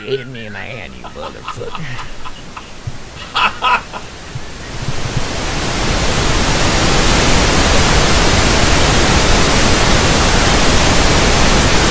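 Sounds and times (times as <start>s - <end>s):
television static: 0.0s - 11.9s.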